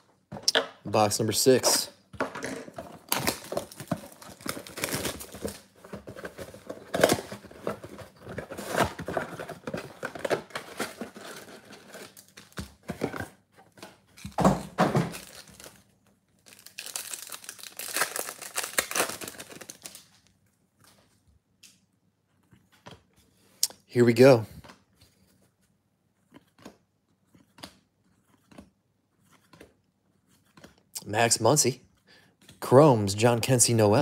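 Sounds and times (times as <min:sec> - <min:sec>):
packs rustling: 0:02.8 - 0:13.3, 0:14.2 - 0:15.8, 0:16.4 - 0:20.2
cardboard box tearing: 0:03.1 - 0:10.0
wrapper crinkling: 0:03.1 - 0:12.6, 0:15.1 - 0:15.8, 0:16.4 - 0:20.2.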